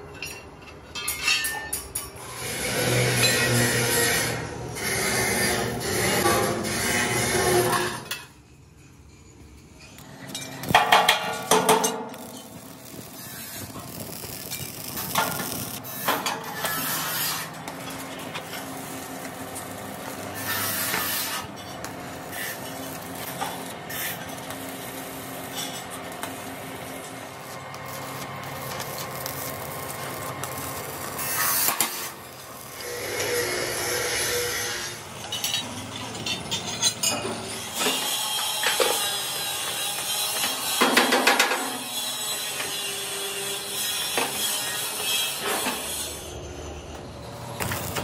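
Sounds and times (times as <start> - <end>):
arc welding crackling hiss: 10.6 - 35.0.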